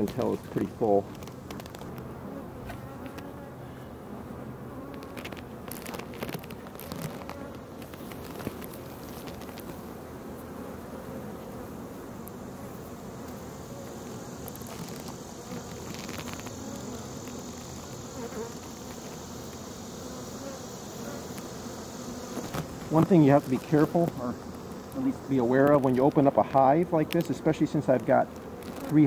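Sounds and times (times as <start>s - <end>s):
honeybees buzzing: 0.0s - 29.0s.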